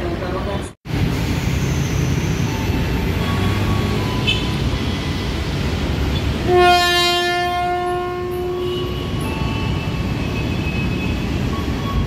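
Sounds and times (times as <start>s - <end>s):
train horn long note: 6.4s - 9.0s.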